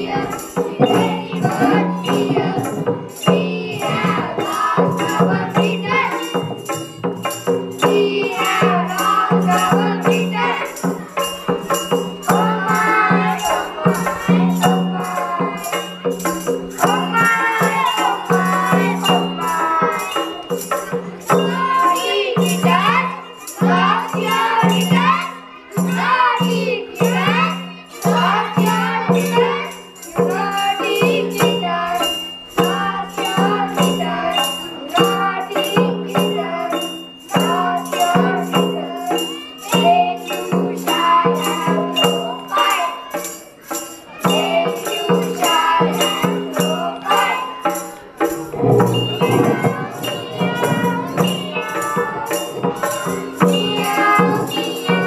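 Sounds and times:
backing music with rattling beat: 0.0 - 25.1, 45.6 - 55.0
children singing in chorus: 0.0 - 55.0.

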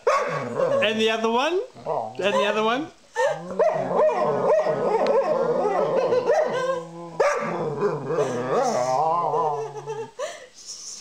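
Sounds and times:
dog howling: 3.3 - 10.0.

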